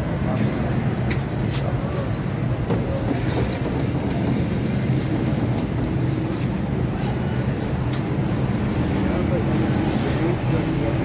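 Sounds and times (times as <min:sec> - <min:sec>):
busy food stall rumble: 0:00.0 - 0:11.0.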